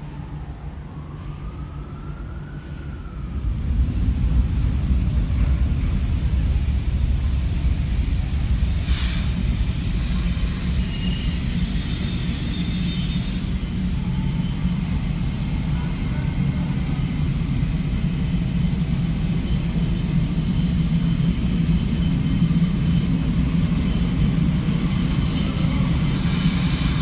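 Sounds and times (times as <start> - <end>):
train rumbling on elevated track: 0.0 - 27.0
high hiss: 3.9 - 13.6
faint high squeals: 10.0 - 27.0.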